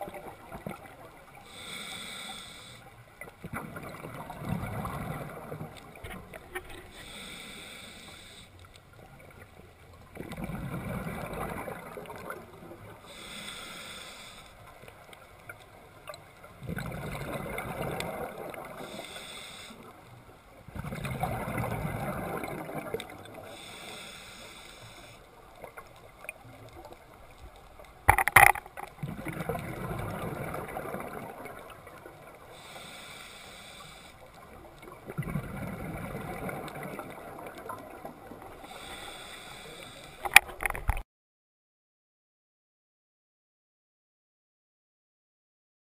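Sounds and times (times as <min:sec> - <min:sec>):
regulator hissing inhale: 0:01.4 - 0:03.0, 0:06.8 - 0:08.7, 0:13.0 - 0:14.7, 0:18.7 - 0:20.1, 0:23.4 - 0:25.3, 0:32.4 - 0:34.4, 0:38.6 - 0:40.3.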